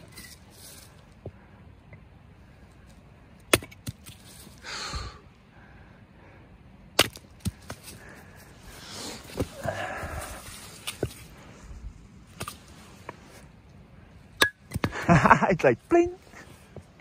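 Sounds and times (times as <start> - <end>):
hatchet chopping wood: 3.5 - 4.1, 7.0 - 7.8.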